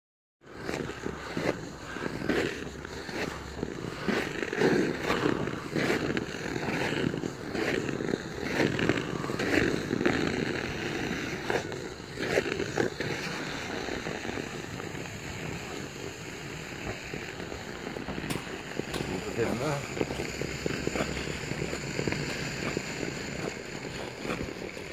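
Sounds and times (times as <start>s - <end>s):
ice skates scraping on ice: 0.4s - 24.9s
skate blade ticks: 0.5s - 24.9s.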